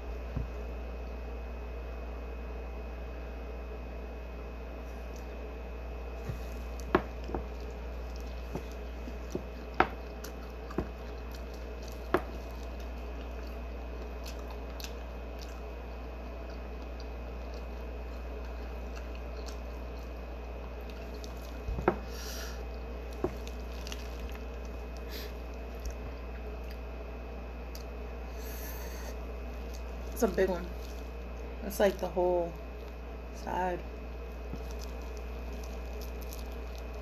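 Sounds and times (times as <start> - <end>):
low hum: 0.0 - 37.0
person chewing wetly: 6.1 - 27.0, 27.6 - 33.2, 33.9 - 37.0.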